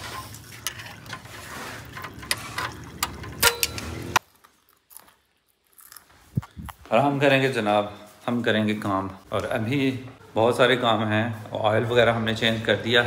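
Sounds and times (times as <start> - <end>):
metal tools clicking and clinking: 0.6 - 4.2.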